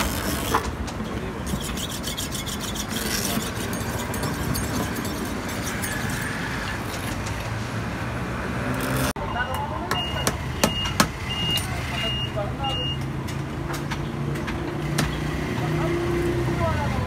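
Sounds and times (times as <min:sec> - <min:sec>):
steady background noise: 0:00.0 - 0:17.0
knife cutting rubber: 0:01.4 - 0:04.2.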